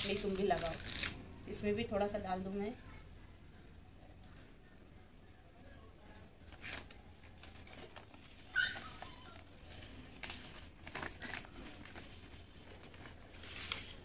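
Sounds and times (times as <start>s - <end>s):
plastic packet crinkling: 0.0s - 1.2s, 6.5s - 14.0s.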